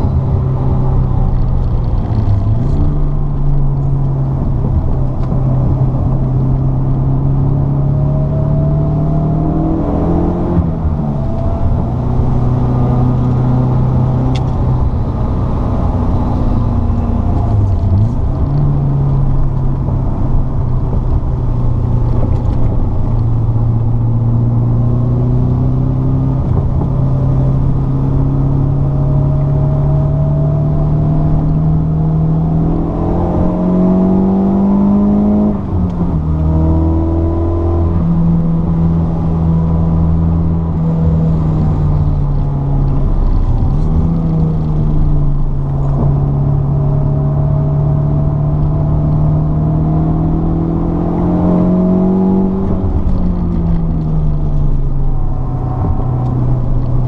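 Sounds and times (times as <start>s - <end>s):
car engine accelerating: 0.0s - 57.0s
road noise: 0.0s - 57.0s.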